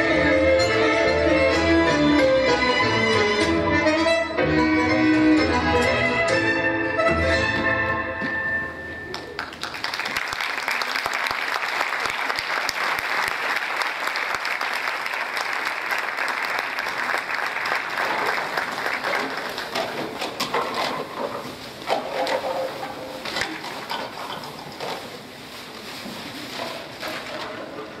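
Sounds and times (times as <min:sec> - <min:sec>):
string music: 0:00.0 - 0:08.8
audience applauding: 0:09.1 - 0:20.2.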